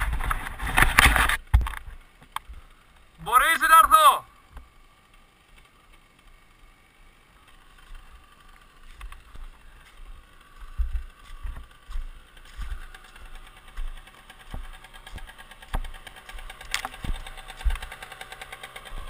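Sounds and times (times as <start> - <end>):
dirt bike engine idling: 0.0 - 19.0
dull thumps: 10.6 - 18.1.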